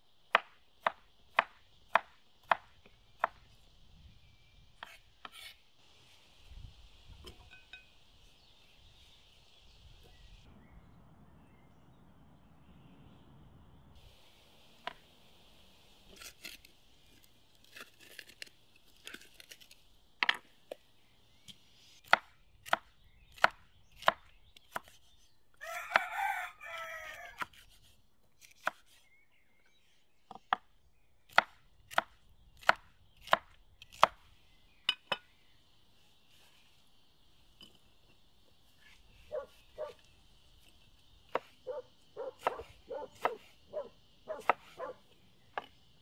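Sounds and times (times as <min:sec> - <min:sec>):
rooster crowing: 0:25.6 - 0:27.4.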